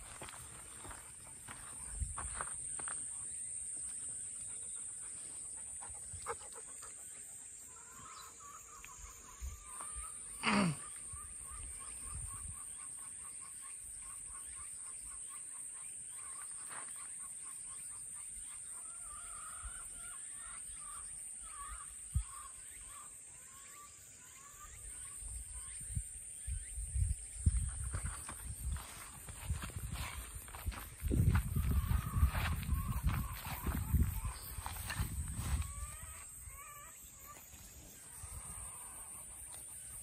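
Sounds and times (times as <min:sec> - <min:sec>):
repeated chirping calls: 0:18.7 - 0:40.0
high-pitched insect drone: 0:27.4 - 0:40.0.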